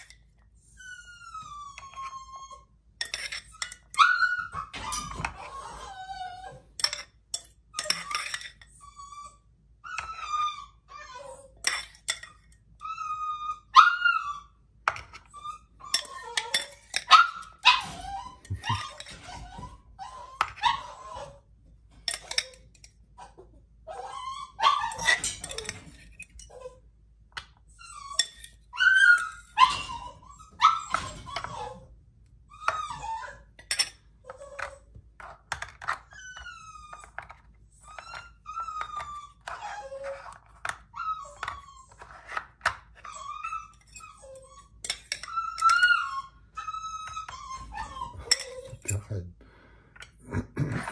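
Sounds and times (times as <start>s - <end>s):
dog whining and yelping: 0.0s - 49.1s
metal spoon clinking on bowl: 3.0s - 4.0s, 6.8s - 8.7s, 11.6s - 12.5s, 15.9s - 17.4s, 22.1s - 22.9s, 24.9s - 26.5s, 28.2s - 28.6s, 33.6s - 34.0s, 44.8s - 45.8s, 48.2s - 49.0s.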